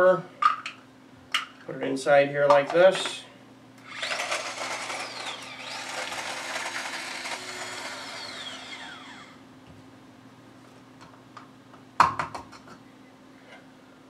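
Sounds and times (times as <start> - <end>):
food chopper whirring: 3.8 - 9.4.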